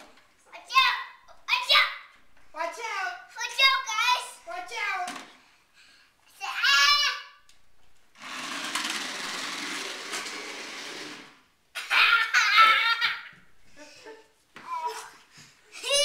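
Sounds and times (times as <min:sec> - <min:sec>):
child crying out excitedly: 0:06.5 - 0:07.3, 0:11.8 - 0:13.4
toy car electric motor whirring: 0:08.2 - 0:11.4.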